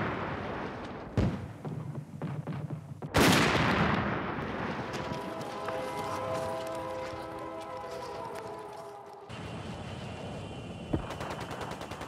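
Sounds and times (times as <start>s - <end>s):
artillery guns firing: 0.0s - 5.1s.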